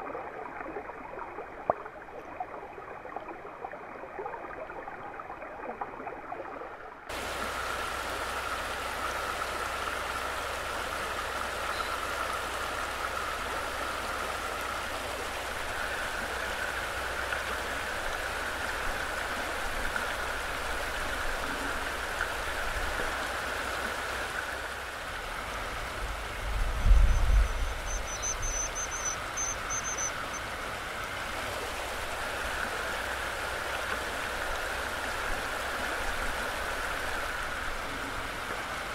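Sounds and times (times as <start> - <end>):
muffled underwater water sound: 0.0 - 38.9
river rushing over stones: 7.1 - 38.9
high-pitched twittering: 27.0 - 30.4.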